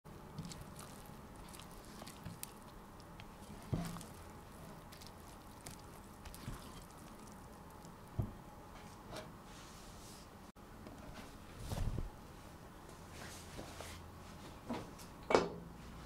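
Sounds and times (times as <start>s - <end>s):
spatula stirring thick batter: 0.1s - 8.2s.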